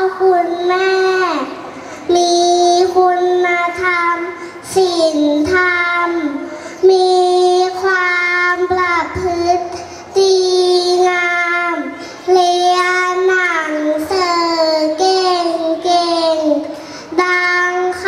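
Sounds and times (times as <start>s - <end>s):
girl singing into a microphone: 0.0s - 18.0s.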